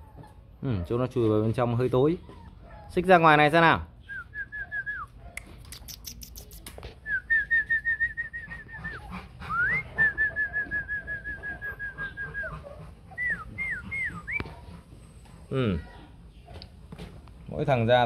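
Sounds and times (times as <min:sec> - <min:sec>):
person whistling: 0:07.1 - 0:12.5.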